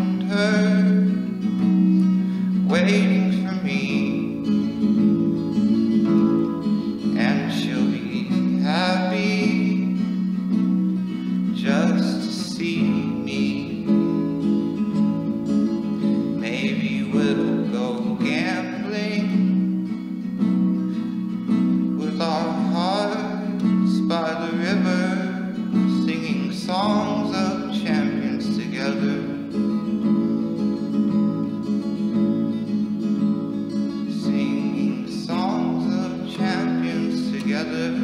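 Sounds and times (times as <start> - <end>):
person singing: 0.0 - 4.8, 6.8 - 14.3, 16.4 - 19.7, 21.8 - 29.8, 33.8 - 38.0
acoustic guitar: 0.0 - 38.0.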